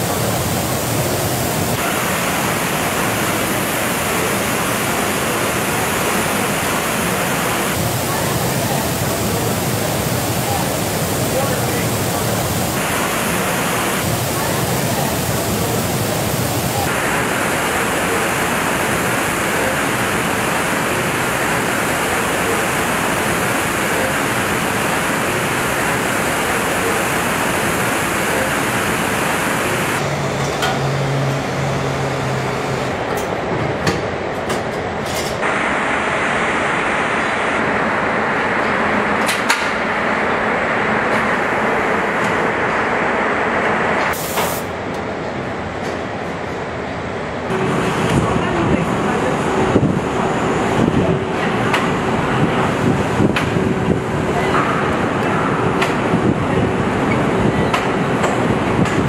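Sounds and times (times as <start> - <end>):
paint spray hiss: 44.1 - 44.7.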